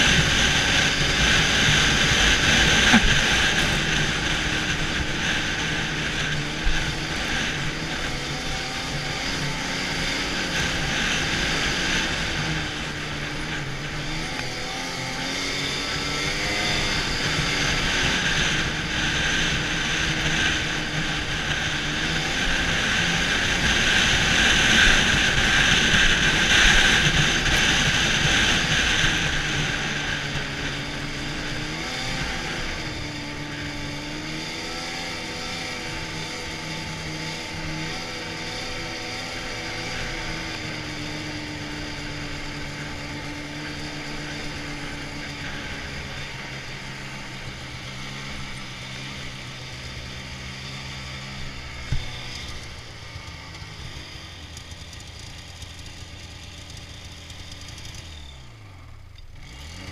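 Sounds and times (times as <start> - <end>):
snowmobile engine running: 0.0 - 59.9.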